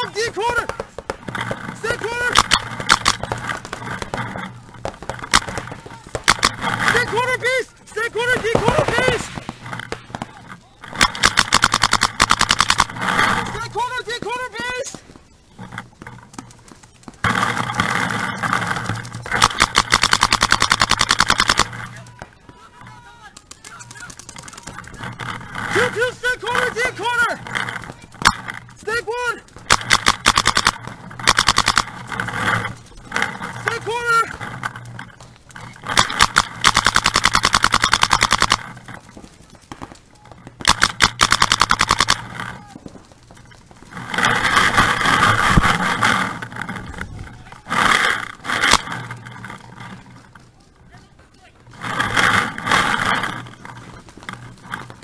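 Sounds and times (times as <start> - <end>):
paintball marker rapid firing: 0.0 - 7.4, 8.1 - 13.6, 16.5 - 22.2, 23.4 - 34.6, 35.6 - 43.0, 43.8 - 47.0, 47.7 - 49.9
loud steady noise: 0.1 - 15.0, 17.1 - 39.0, 40.4 - 43.0, 43.7 - 50.2.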